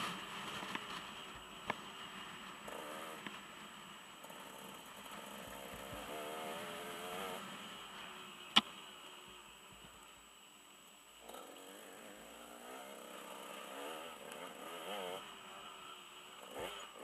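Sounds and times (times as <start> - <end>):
dirt bike engine revving: 4.2 - 7.8, 11.2 - 17.0.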